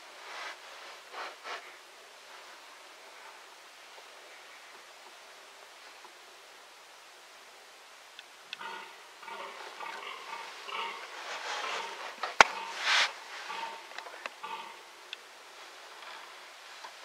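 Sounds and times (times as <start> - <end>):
rustling: 0.0 - 6.5, 8.6 - 17.0
deer groaning: 8.6 - 16.5.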